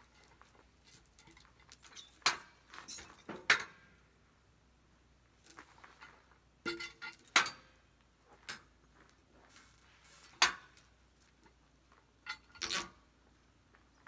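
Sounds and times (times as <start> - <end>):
knocks of steel and wood: 2.2 - 3.8, 6.6 - 7.7, 10.4 - 10.8.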